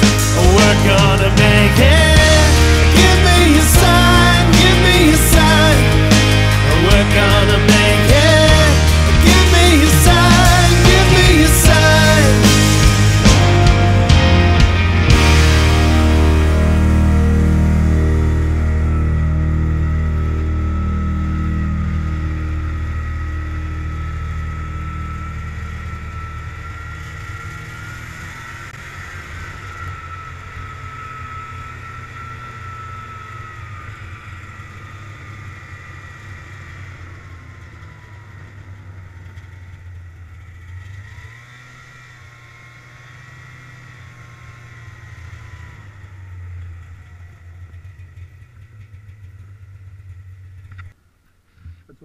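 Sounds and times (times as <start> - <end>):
song: 0.0 - 26.2
snowmobile engine whine: 0.0 - 52.0.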